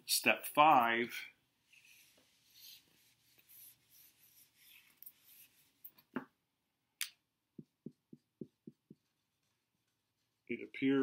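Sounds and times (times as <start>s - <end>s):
eraser wiping whiteboard: 1.7s - 5.8s.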